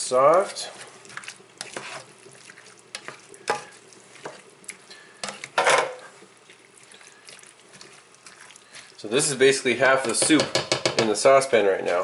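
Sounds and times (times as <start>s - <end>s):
utensil stirring thick sauce: 0.0s - 12.0s
utensil scraping saucepan: 0.3s - 6.2s.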